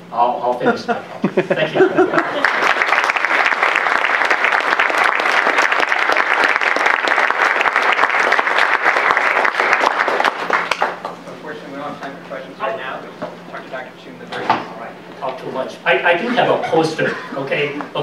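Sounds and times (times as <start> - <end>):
audience applauding: 2.0 - 11.1.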